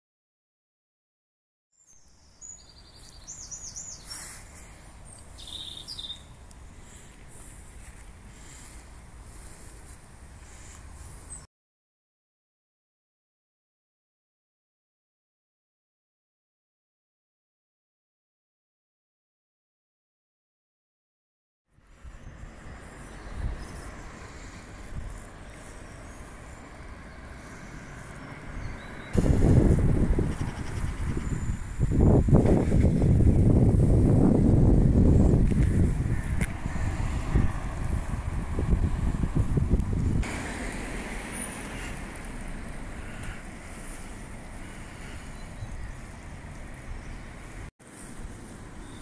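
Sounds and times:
songbirds trilling and whistling: 0:01.8 - 0:11.5, 0:21.9 - 0:32.4, 0:41.2 - 0:49.0
low traffic rumbles: 0:02.1 - 0:11.5, 0:21.8 - 0:49.0
road traffic hiss: 0:02.1 - 0:11.5, 0:21.7 - 0:49.0.

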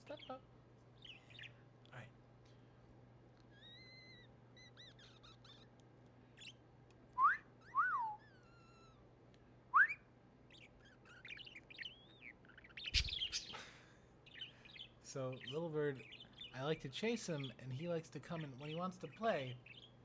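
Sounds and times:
budgerigar chirping: 0:01.0 - 0:01.6, 0:03.5 - 0:05.8, 0:10.5 - 0:13.6, 0:14.2 - 0:20.0.

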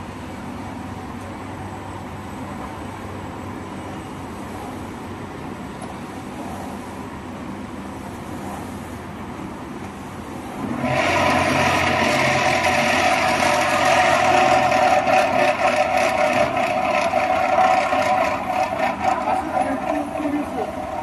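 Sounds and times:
cutting machine whirring with whine: 0:10.5 - 0:21.0.

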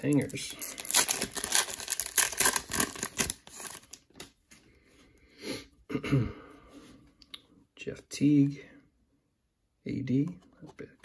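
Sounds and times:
cellophane wrapper crinkling and tearing: 0:00.0 - 0:04.4.

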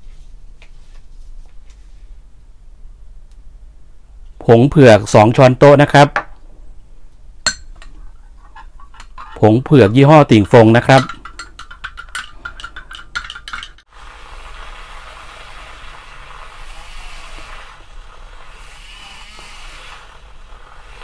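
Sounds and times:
spoon clinking against glass jug: 0:07.5 - 0:10.0, 0:10.7 - 0:13.8
milk frother whirring: 0:11.6 - 0:21.0.

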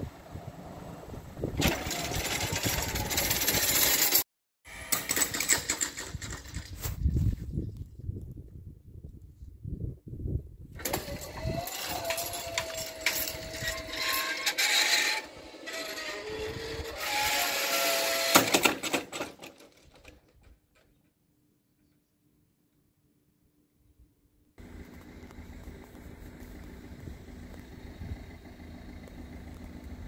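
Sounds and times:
barrier rattling and clicking: 0:01.6 - 0:04.2, 0:04.9 - 0:06.9, 0:10.8 - 0:16.1, 0:18.2 - 0:21.0
barrier drive whining: 0:10.8 - 0:18.5.

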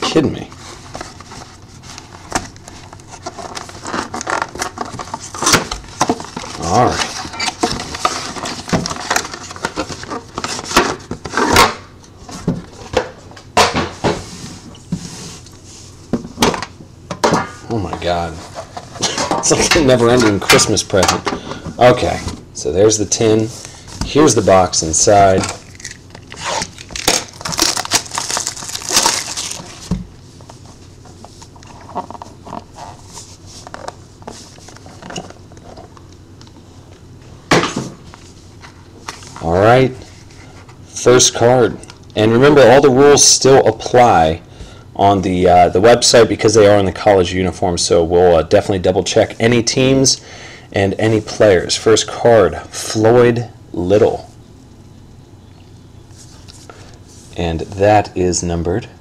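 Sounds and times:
box lid scraping and rustling: 0:00.5 - 0:13.0, 0:18.0 - 0:21.2.

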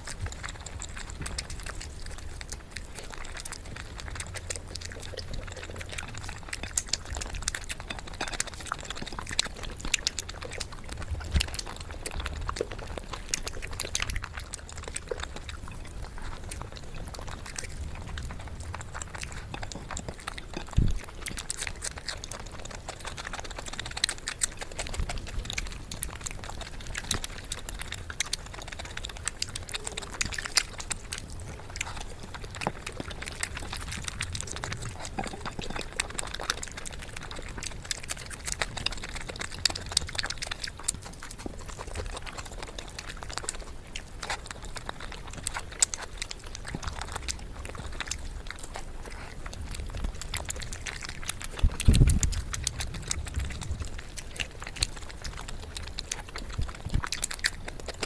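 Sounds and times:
wet chewing and lip smacking: 0:00.0 - 0:58.0
chicken being torn apart: 0:27.0 - 0:58.0.

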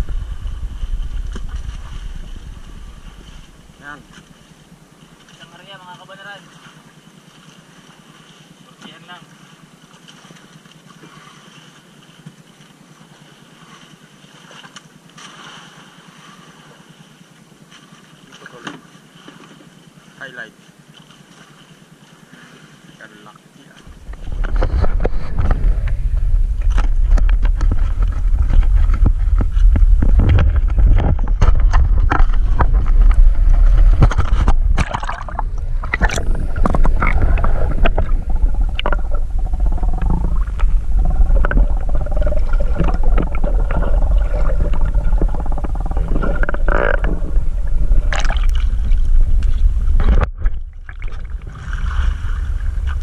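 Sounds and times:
bubbling: 0:00.0 - 0:04.4, 0:23.8 - 0:53.0
underwater rumble of moving water: 0:00.0 - 0:53.0
wavering hum through water: 0:00.0 - 0:53.0.

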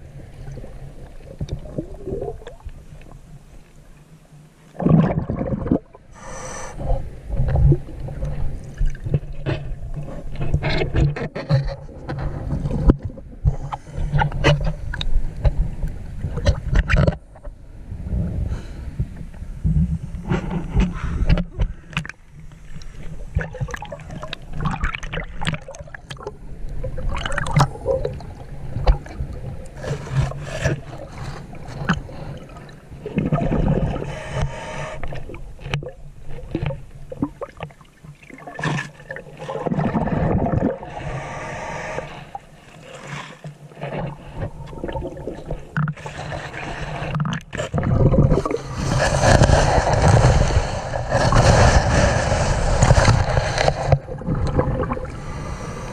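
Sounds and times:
underwater gurgling and sloshing: 0:00.0 - 0:55.9
clicks knocks and scrapes: 0:09.4 - 0:15.6.

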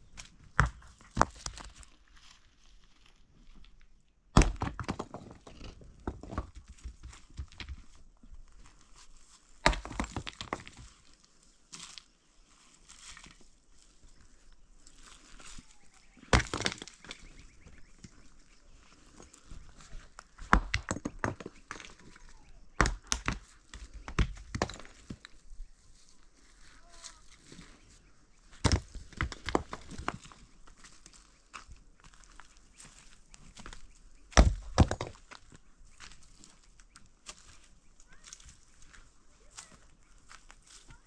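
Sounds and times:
rocks knocking together: 0:00.2 - 0:01.9, 0:04.3 - 0:07.9, 0:09.6 - 0:11.0, 0:16.2 - 0:18.3, 0:19.2 - 0:25.4, 0:28.5 - 0:30.5, 0:33.4 - 0:36.2
stone scraping on stony ground: 0:04.5 - 0:07.8, 0:08.8 - 0:11.1, 0:16.2 - 0:22.2, 0:22.8 - 0:25.4.

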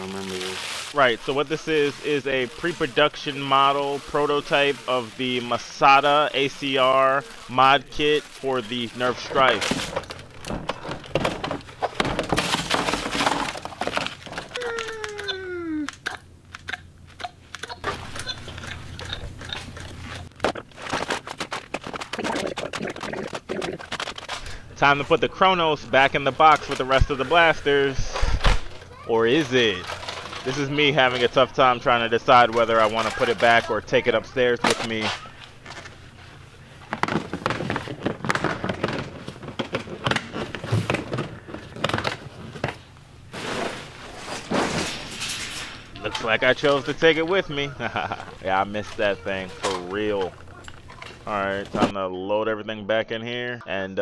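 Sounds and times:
plastic toys clattering: 0:00.0 - 0:16.8, 0:17.4 - 0:51.9
plastic toys clacking together: 0:28.0 - 0:35.9.

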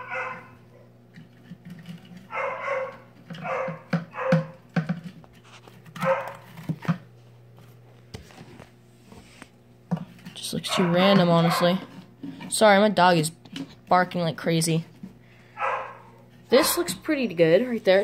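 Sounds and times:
dog barking: 0:00.0 - 0:00.9, 0:02.3 - 0:04.6, 0:06.0 - 0:06.5, 0:10.6 - 0:11.9, 0:15.6 - 0:16.9.

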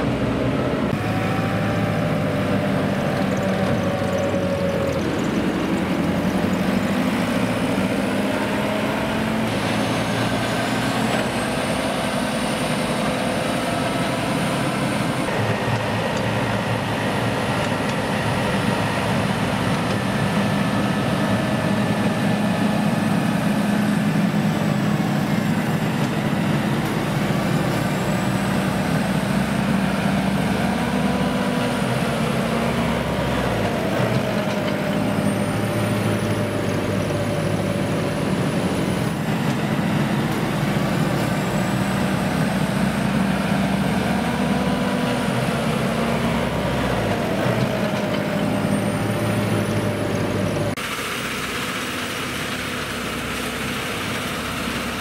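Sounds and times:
diesel machinery revving: 0:00.0 - 0:55.0.

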